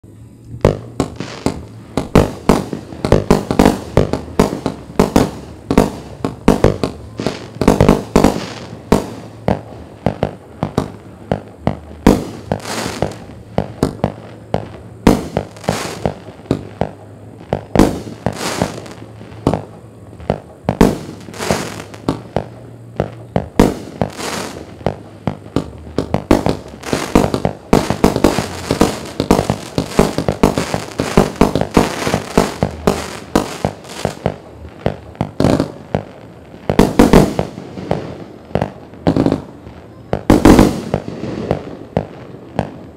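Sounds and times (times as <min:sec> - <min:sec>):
firework aerial bursts: 0:00.1 - 0:42.9.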